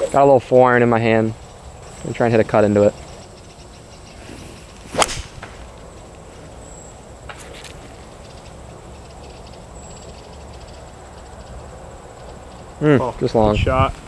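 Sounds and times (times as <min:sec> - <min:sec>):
golf club swish and crack: 0:04.1 - 0:05.8.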